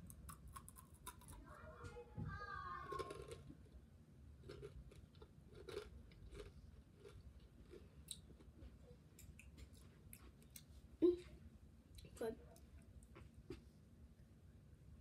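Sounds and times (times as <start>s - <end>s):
chewing crunchy chip: 0.0s - 1.4s, 2.9s - 3.8s, 4.4s - 10.7s.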